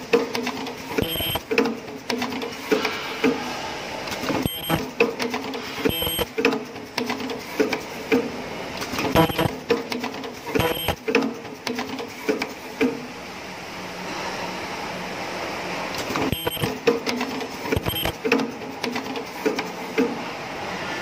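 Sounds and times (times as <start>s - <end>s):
high-pitched ultrasonic whines: 1.0s - 1.4s, 4.4s - 4.8s, 5.8s - 6.3s, 9.2s - 9.6s, 10.6s - 11.0s, 16.3s - 16.8s, 17.8s - 18.2s.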